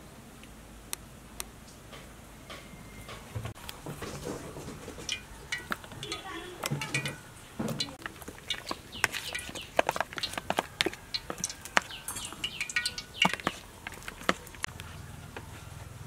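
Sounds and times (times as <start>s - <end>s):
spoon stirring thick batter: 3.6s - 16.0s
sticky squelches and clicks: 7.7s - 15.5s.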